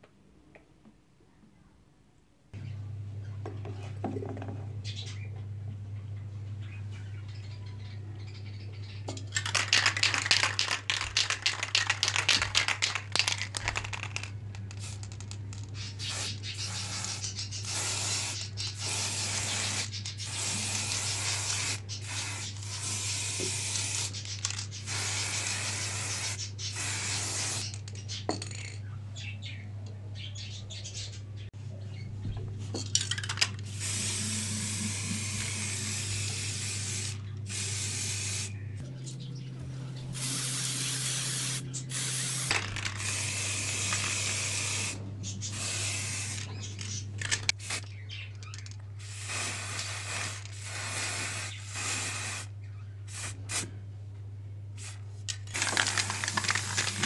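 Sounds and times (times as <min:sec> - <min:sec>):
spray can rattling: 0:09.2 - 0:28.8, 0:32.8 - 0:38.5, 0:40.2 - 0:52.5, 0:54.8 - 0:57.0
spray paint can hissing: 0:09.4 - 0:27.8, 0:33.6 - 0:38.5, 0:40.2 - 0:47.8, 0:49.0 - 0:52.5, 0:53.1 - 0:53.7, 0:54.8 - 0:57.0.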